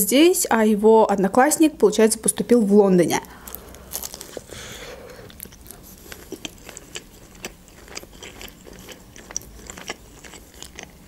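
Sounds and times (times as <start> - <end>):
wet chewing: 3.5 - 11.0.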